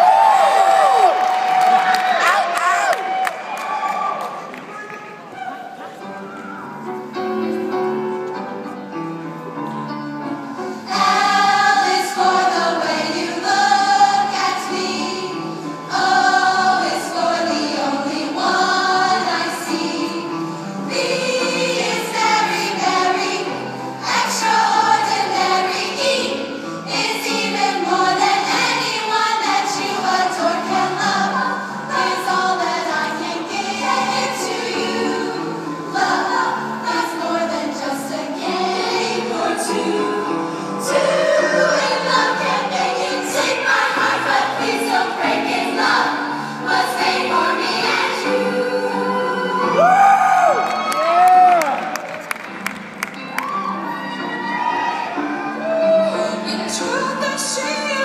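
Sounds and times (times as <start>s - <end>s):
women's choir singing: 9.6s - 50.6s, 53.7s - 58.0s.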